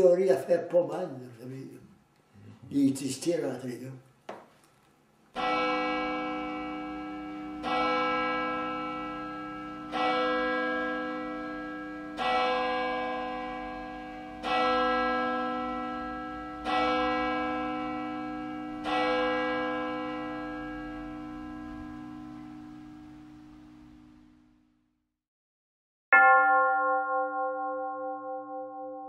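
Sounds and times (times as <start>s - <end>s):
church bell tolling: 5.4s - 24.6s, 26.2s - 29.0s.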